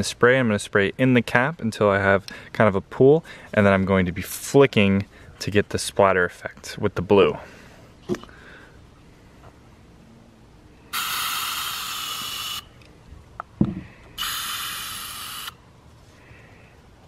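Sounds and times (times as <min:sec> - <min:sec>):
spray can hissing: 0:11.0 - 0:12.6, 0:14.2 - 0:15.6.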